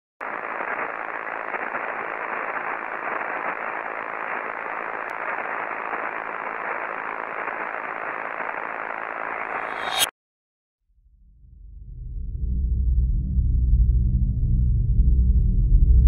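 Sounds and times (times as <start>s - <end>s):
television static hiss: 0.2s - 9.6s.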